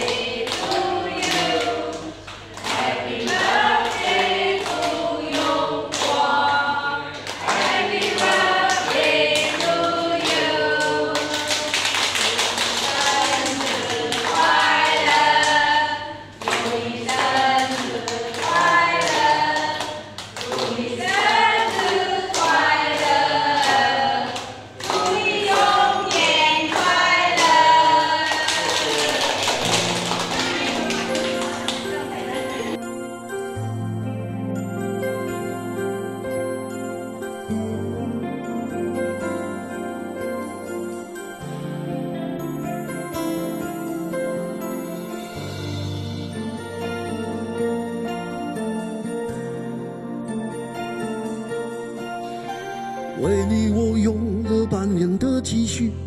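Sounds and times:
group singing in unison: 0.0 - 32.8
people clapping in time: 0.0 - 32.8.

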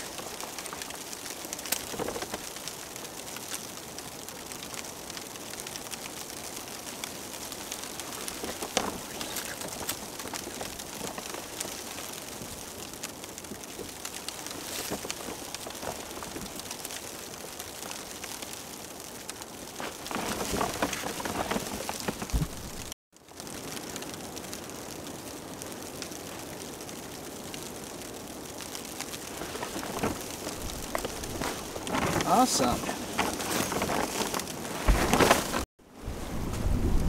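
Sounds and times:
crackling patter of snow: 0.0 - 37.0
cord rustling: 7.9 - 12.5, 19.8 - 23.0, 29.3 - 35.7.

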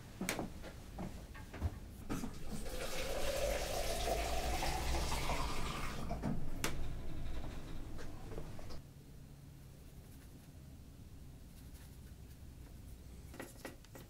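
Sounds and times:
water filling a container: 2.2 - 6.2.

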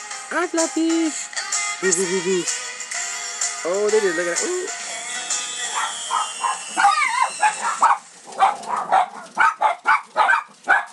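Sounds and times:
music: 0.0 - 8.2
dog whimpering yelp: 5.7 - 9.8
small dog yapping: 5.7 - 10.9.

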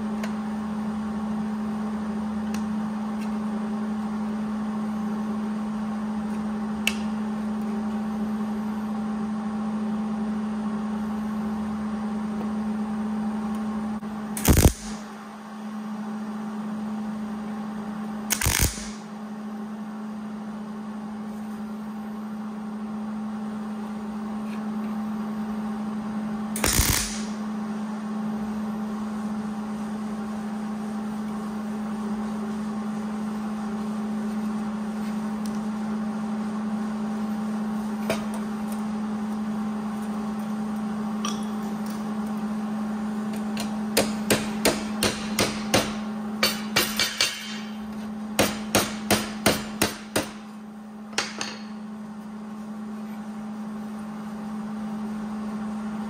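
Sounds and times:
steady electrical hum: 0.0 - 56.0
tack welding bursts: 14.4 - 15.0, 18.3 - 19.0, 26.6 - 27.4.

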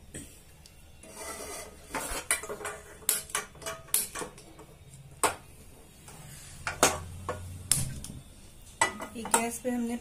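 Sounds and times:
steel dishes and utensils clinking: 1.0 - 5.4, 8.8 - 9.6.

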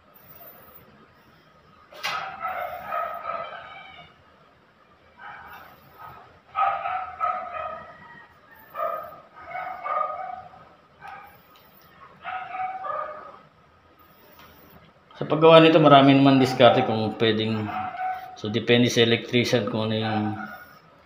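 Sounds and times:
dog barking: 2.1 - 4.0, 5.1 - 11.4, 12.0 - 13.5, 16.0 - 18.5, 19.9 - 20.8.

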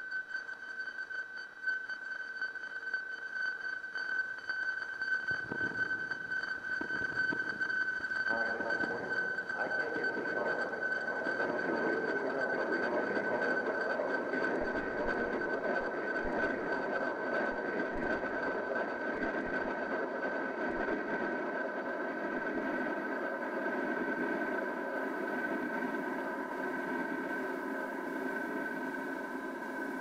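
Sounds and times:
noisy electronic drone: 5.2 - 30.0.

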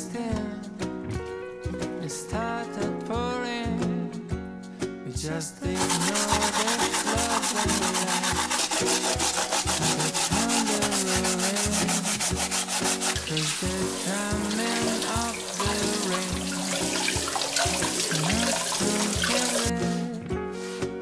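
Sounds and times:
bamboo sieve scrubbed in water: 5.8 - 19.8
tap water running: 5.8 - 19.8.

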